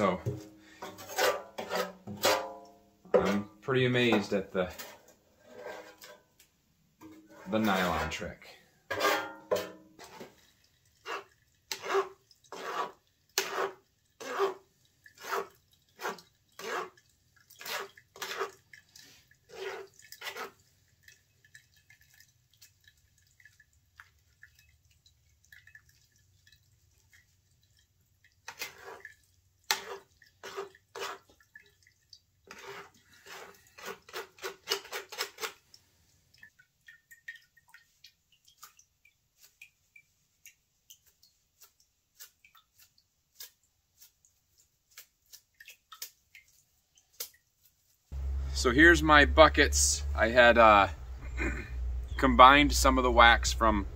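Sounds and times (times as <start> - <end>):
metal spoon scraping strainer: 4.7 - 6.2, 8.9 - 10.4, 11.0 - 14.6, 15.2 - 17.0, 32.5 - 35.6.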